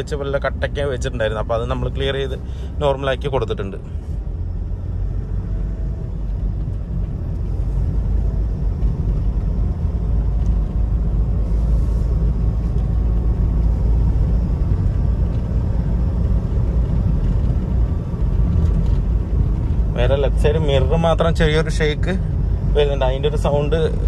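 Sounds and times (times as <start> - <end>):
car engine and road rumble: 0.0 - 24.0.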